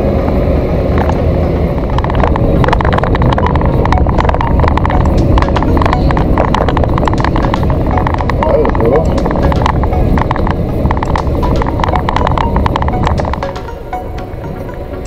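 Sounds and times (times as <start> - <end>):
lorry engine rumble: 0.0 - 15.0
road noise: 0.0 - 15.0
rapid irregular clicking: 1.9 - 13.9.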